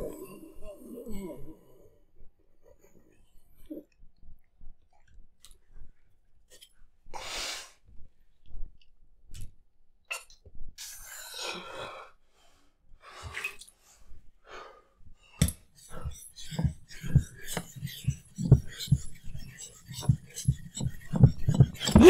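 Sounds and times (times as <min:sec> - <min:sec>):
man breathing heavily: 0:11.4 - 0:22.0.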